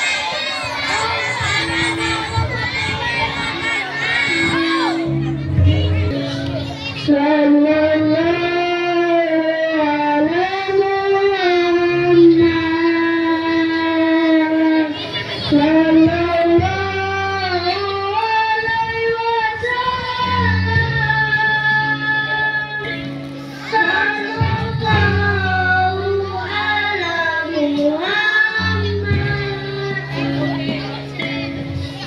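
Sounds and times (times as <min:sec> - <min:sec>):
backing accompaniment: 0:00.0 - 0:08.4
children singing into microphones: 0:00.0 - 0:32.0.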